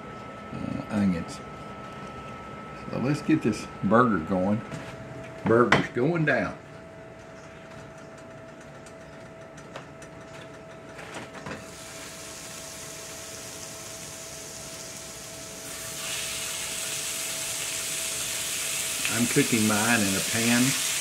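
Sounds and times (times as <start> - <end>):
burger patties sizzling in skillets: 11.7 - 21.0.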